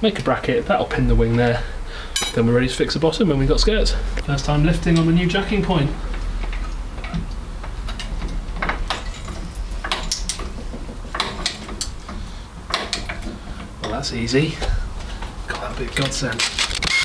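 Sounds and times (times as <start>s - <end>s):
trolley jack clicking and clanking: 6.1s - 14.4s.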